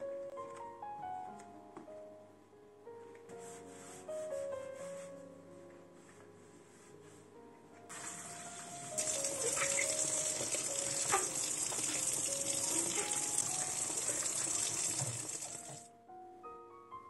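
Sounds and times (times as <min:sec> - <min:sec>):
tap water splashing into steel sink: 0:09.0 - 0:15.8.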